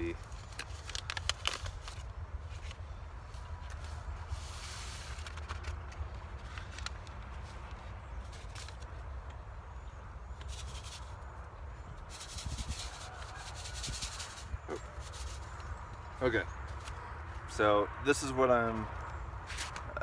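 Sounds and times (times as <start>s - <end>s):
paper seed packet rustling: 0.0s - 9.1s, 12.0s - 17.5s.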